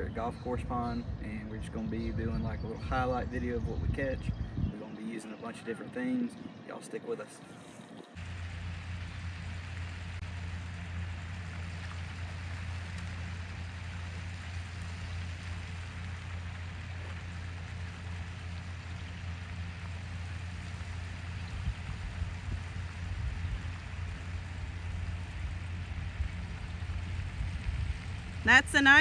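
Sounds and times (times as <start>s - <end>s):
low hum: 0.0s - 29.0s
fountain spray hiss: 8.2s - 29.0s.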